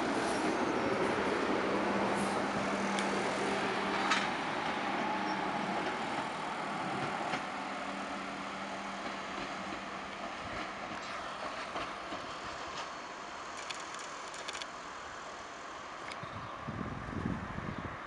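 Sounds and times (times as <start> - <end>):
tram rolling on tracks: 0.0 - 18.0
sharp clicks of wheels on rails: 3.9 - 4.4, 6.9 - 8.0, 9.0 - 14.7.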